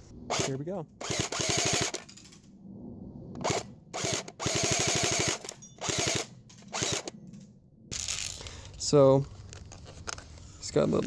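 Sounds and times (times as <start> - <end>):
airsoft gun firing bursts: 0.4 - 2.0, 4.0 - 7.1.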